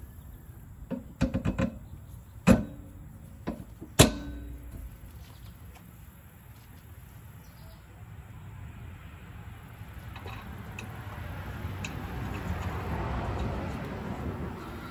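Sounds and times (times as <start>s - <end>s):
metal clanks on steel bracket: 2.4s - 5.0s, 10.1s - 11.1s, 11.8s - 13.8s.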